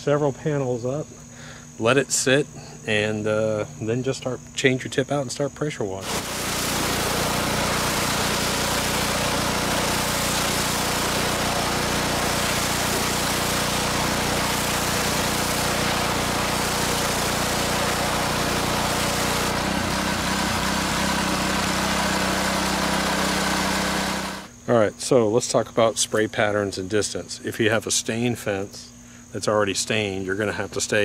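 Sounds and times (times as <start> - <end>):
pressure washer engine running: 6.0 - 24.5
water spray hissing on wood: 6.0 - 24.5.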